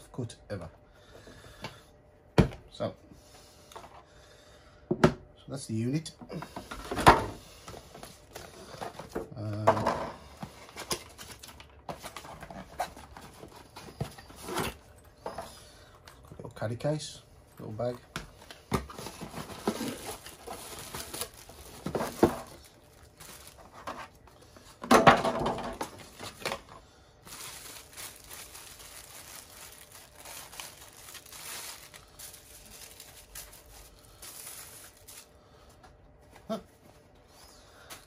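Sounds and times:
plastic wrap crinkling: 19.0 - 24.2, 25.8 - 35.4.

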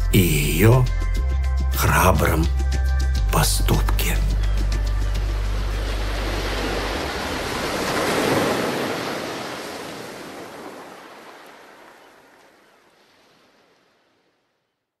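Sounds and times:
sea waves rushing: 4.0 - 14.4.

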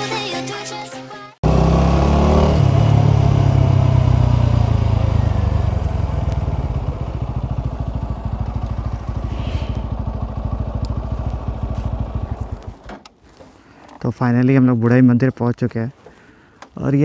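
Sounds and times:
motorcycle engine running: 1.4 - 13.0.

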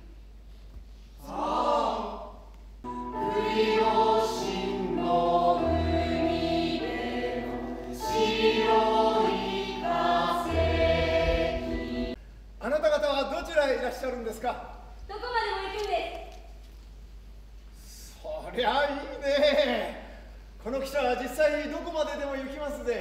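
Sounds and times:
choir singing hymn-like piece: 1.2 - 12.2.

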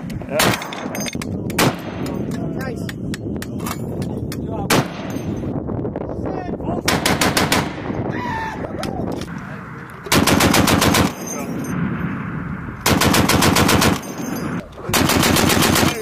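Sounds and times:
heavy machine gun firing: 6.9 - 7.8, 10.1 - 11.2, 12.8 - 14.0, 14.9 - 16.0.

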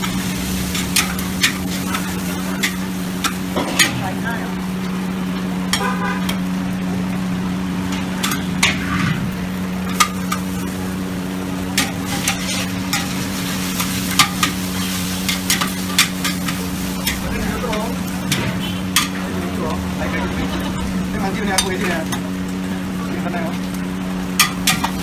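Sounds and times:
frying sizzle: 0.0 - 25.0
steady mechanical hum: 0.0 - 25.0
metal spatula scraping a wok: 11.8 - 17.3.

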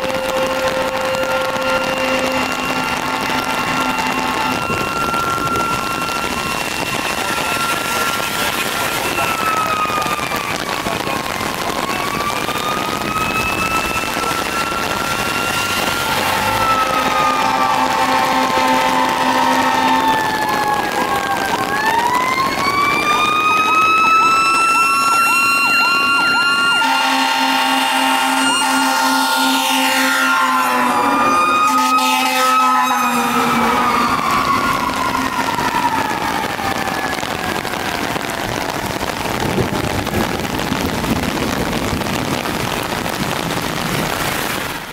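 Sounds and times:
electronic siren cycling: 0.0 - 39.5
heavy rain on wet street: 0.0 - 44.9
traffic rumbling: 0.0 - 44.9.

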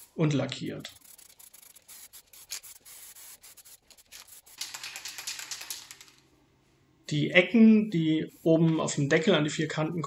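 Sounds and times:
spray paint can hissing: 0.8 - 5.9.

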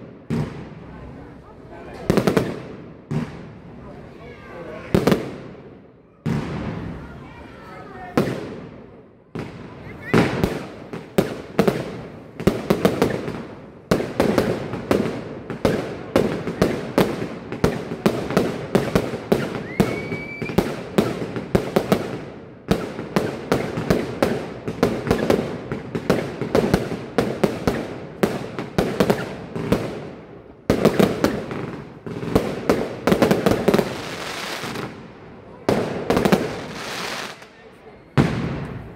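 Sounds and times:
fireworks bursting: 0.0 - 38.9
rising firework whistle: 19.4 - 21.2.

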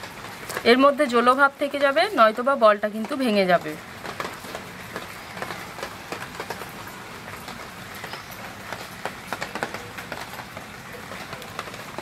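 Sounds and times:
rain hissing: 0.0 - 12.0.

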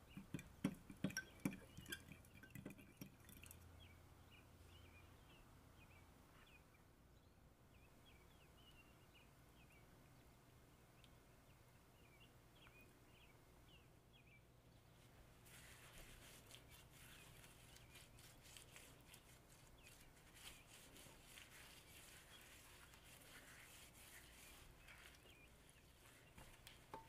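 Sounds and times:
hand rubbing marinade into meat: 15.4 - 27.0.

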